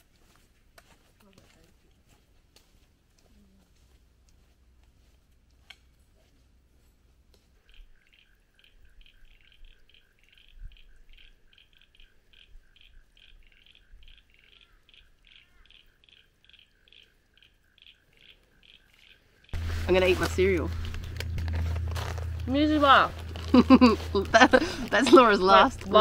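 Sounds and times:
faint rapid chirping: 0:07.6 - 0:19.6.

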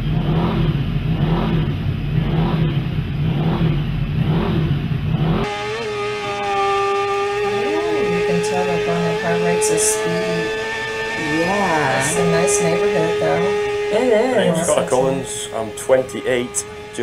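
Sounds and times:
racing motorcycles passing: 0:00.0 - 0:17.0
steady droning tone: 0:00.0 - 0:17.0.

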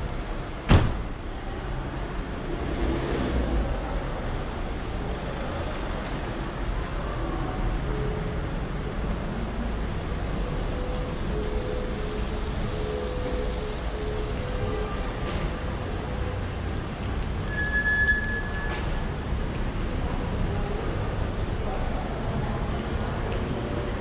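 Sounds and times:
car door slamming: 0:00.6 - 0:01.2.

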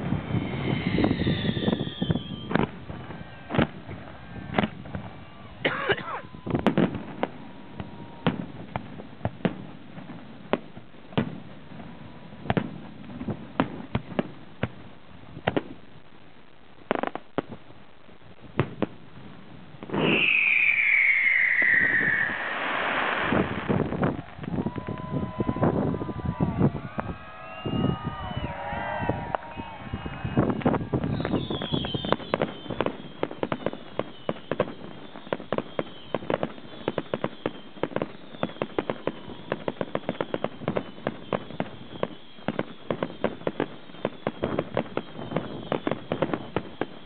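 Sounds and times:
falling firework whistle: 0:00.0 - 0:08.7, 0:19.9 - 0:47.0
fireworks bangs and pops: 0:00.0 - 0:47.0
hissing crackle: 0:20.0 - 0:25.0.

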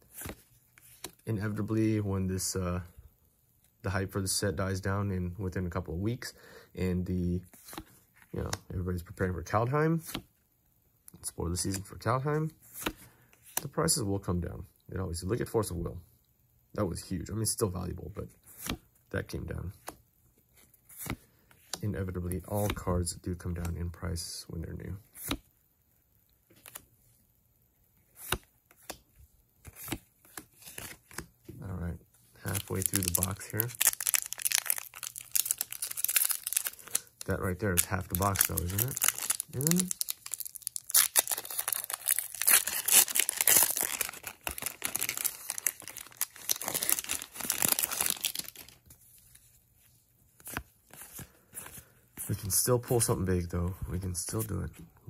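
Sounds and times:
playing cards snapping and sliding: 0:28.2 - 0:29.0, 0:29.6 - 0:31.3
foil wrapper tearing and crinkling: 0:32.5 - 0:37.1, 0:37.7 - 0:48.8.

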